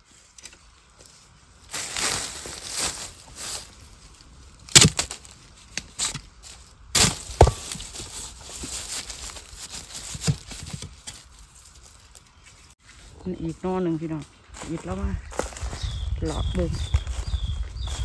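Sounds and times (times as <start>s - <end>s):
sharp woody chopping strikes: 4.7s - 5.2s, 7.0s - 8.0s.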